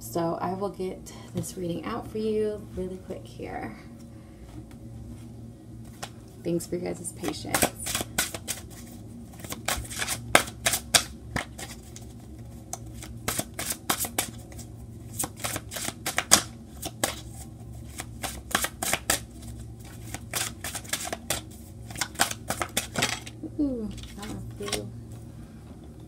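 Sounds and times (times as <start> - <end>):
cards being shuffled: 7.2 - 23.3, 23.9 - 24.9.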